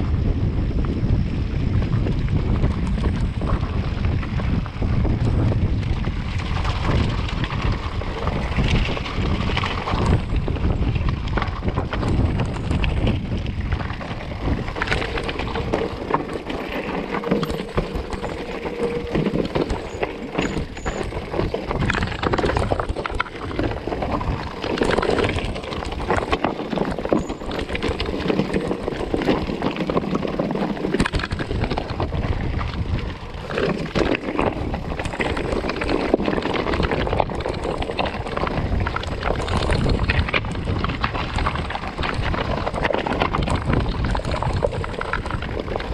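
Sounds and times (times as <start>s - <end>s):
wind rumbling on microphone: 0.0s - 45.9s
tyres crunching over stones: 5.2s - 45.9s
bike frame clatter: 14.0s - 32.0s.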